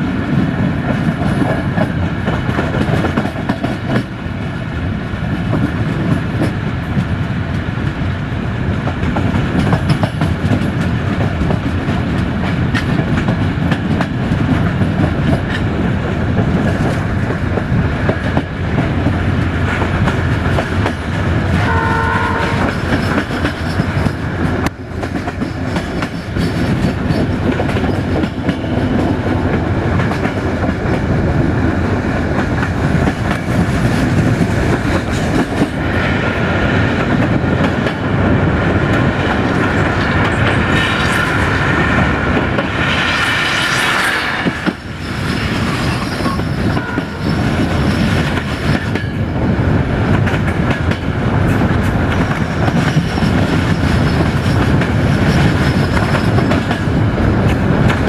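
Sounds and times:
train rolling and wheel clatter: 0.0s - 58.0s
train horn blast: 21.5s - 22.8s, 46.8s - 47.2s.

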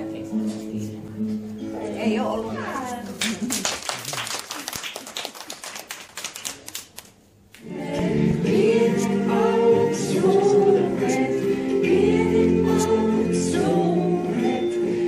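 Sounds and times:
hand clapping: 3.2s - 7.6s
group of voices singing: 7.6s - 15.0s.

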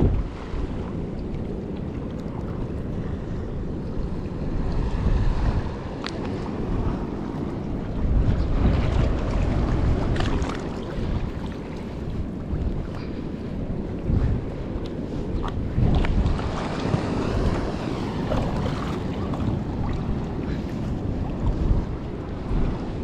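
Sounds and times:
sea water lapping: 0.0s - 23.0s
wind buffeting microphone: 0.0s - 23.0s.

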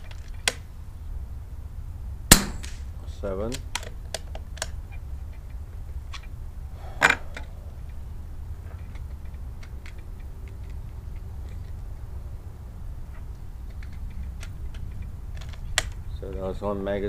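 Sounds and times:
air rifle handling clicks: 3.5s - 4.8s, 8.7s - 11.9s, 13.2s - 16.0s.

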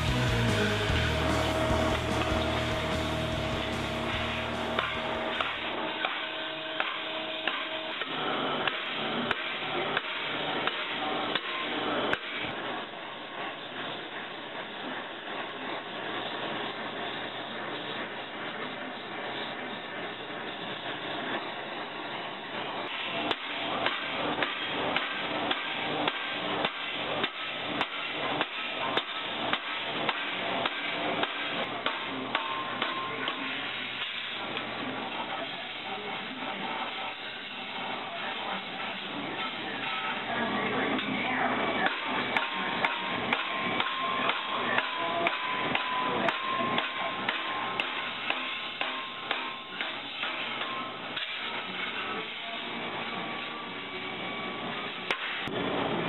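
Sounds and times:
hammer striking metal: 0.0s - 12.3s, 23.3s - 34.2s, 41.8s - 51.8s, 55.1s - 55.5s
hammer on metal: 4.1s - 6.2s, 41.8s - 51.4s.

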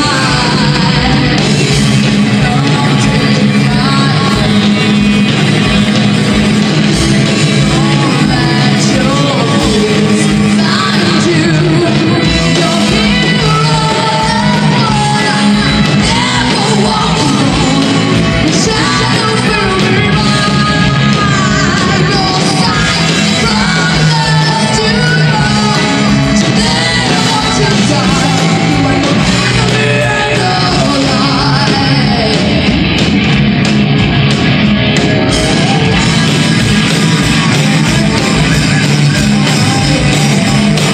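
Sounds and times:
woman singing: 0.0s - 4.8s, 7.4s - 32.6s
metal band playing live: 0.0s - 40.9s.

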